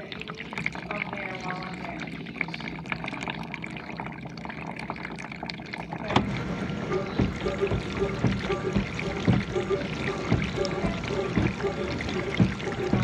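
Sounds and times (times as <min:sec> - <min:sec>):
dishwasher water spraying: 0:06.0 - 0:13.0
steady low hum: 0:06.1 - 0:13.0.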